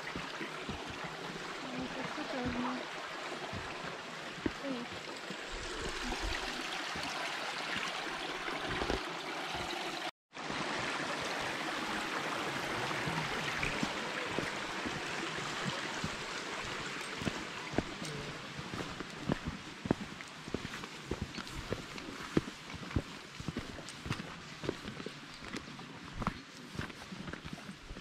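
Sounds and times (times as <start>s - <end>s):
brook rushing over rocks: 0.0s - 25.2s
footsteps on gravel: 13.7s - 28.0s.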